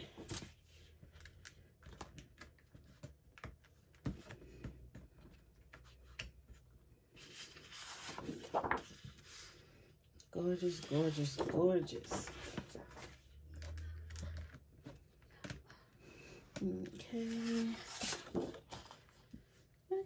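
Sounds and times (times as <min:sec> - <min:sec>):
paper rustling: 0:00.0 - 0:09.6, 0:10.5 - 0:15.5, 0:16.8 - 0:19.4
paper swishing: 0:07.2 - 0:09.6, 0:10.6 - 0:13.2, 0:17.2 - 0:19.0.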